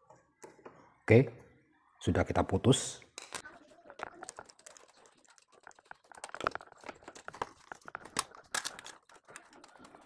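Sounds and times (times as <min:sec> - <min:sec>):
pliers scraping and clicking on plastic: 0:06.1 - 0:10.0.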